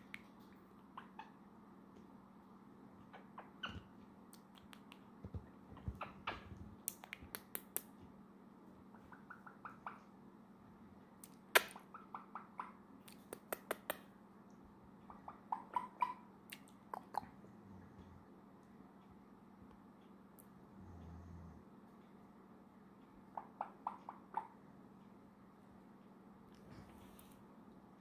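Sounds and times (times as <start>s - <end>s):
parrot squeaky chirps: 3.1s - 3.9s, 8.9s - 10.0s, 15.1s - 16.3s
parrot clicking: 6.8s - 7.9s, 13.0s - 14.1s.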